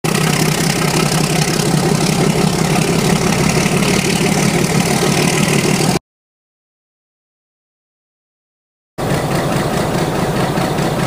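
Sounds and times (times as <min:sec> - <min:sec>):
diesel locomotive engine running: 0:00.0 - 0:06.0, 0:09.0 - 0:11.0
steady rushing noise: 0:00.1 - 0:06.0.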